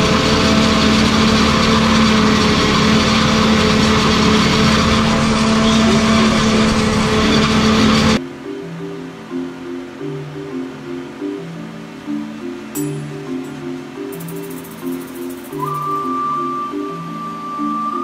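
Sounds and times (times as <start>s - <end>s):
tractor running: 0.0s - 8.2s.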